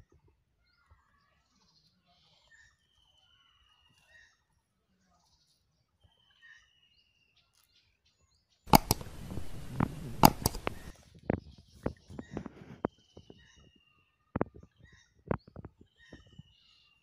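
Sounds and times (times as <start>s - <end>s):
fishing rod clicks and knocks: 8.7s - 10.9s.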